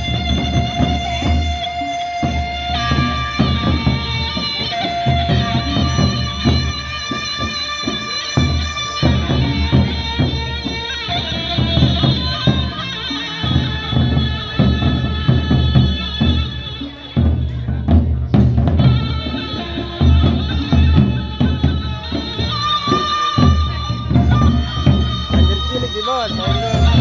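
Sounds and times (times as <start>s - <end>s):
barrel drums beaten fast: 0.0s - 27.0s
sustained melody line: 18.8s - 27.0s.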